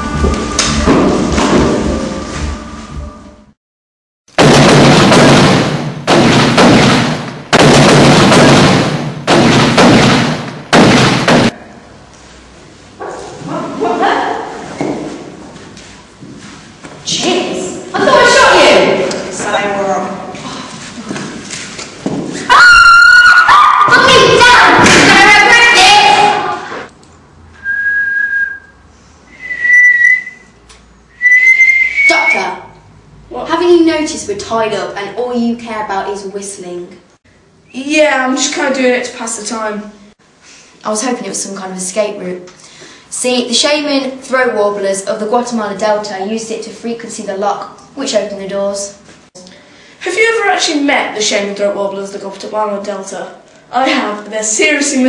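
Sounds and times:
loud blasts: 4.3 - 11.6
person whistling held notes: 27.6 - 32.4.

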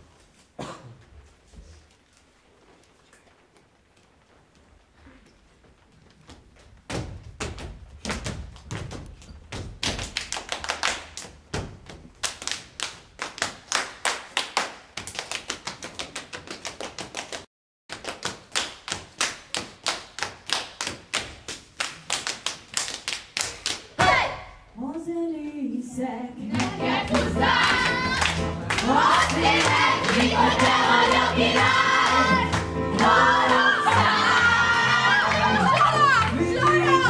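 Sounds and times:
foot stomps on stage floor: 6.4 - 10.2
hand claps and slaps: 9.8 - 24.0.

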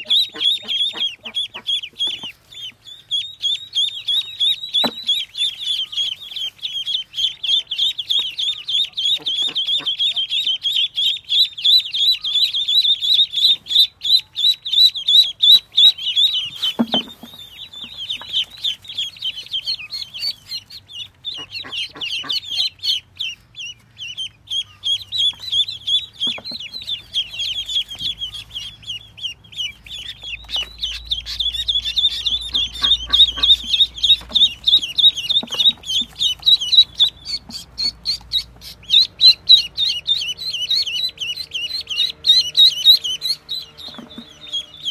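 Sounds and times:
ducklings peeping: 0.0 - 44.9.

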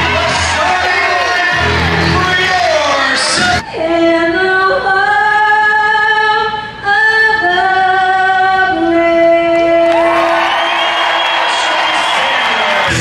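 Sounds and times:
woman singing slow melody: 3.6 - 10.0.

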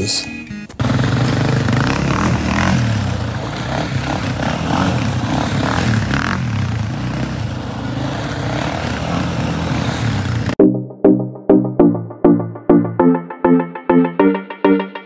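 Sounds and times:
tyres spinning on gravel: 0.7 - 10.6
quad engines revving: 0.8 - 10.6
plucked musical notes: 10.6 - 15.0.

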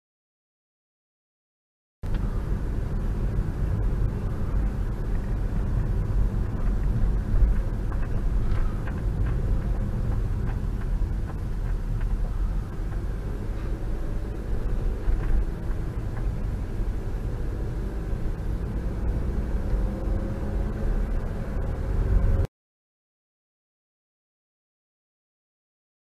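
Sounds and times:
car driving rumble inside cabin: 2.0 - 22.5.

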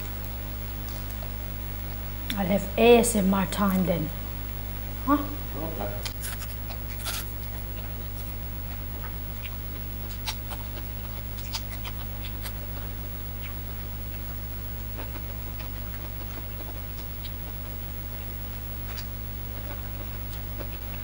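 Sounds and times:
steady electrical hum: 0.0 - 21.0
person chewing: 6.0 - 21.0.

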